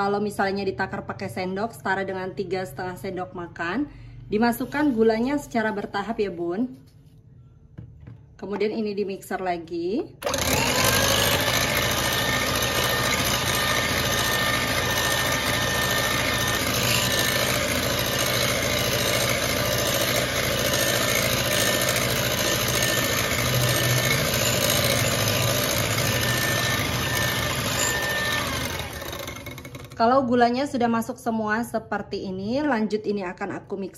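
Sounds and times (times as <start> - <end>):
electric hand mixer whining: 10.2 - 30.2.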